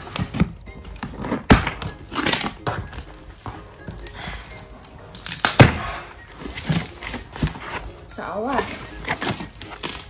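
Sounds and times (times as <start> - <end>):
scissors cutting tape: 0.0 - 3.2
cardboard flaps rustling: 5.2 - 10.0.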